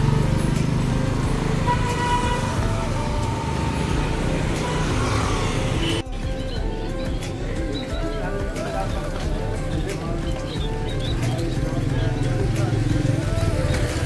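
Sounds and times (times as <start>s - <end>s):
car engines passing: 0.0s - 6.0s
motor scooter passing: 0.0s - 6.0s, 8.2s - 14.0s
road noise rumble: 0.0s - 14.0s.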